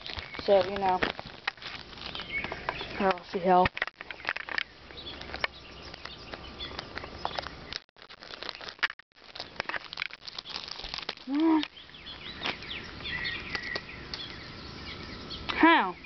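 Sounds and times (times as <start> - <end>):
plastic bag crinkling: 0.0 - 5.5, 7.4 - 12.7
birds chirping: 0.0 - 7.8, 10.2 - 16.0.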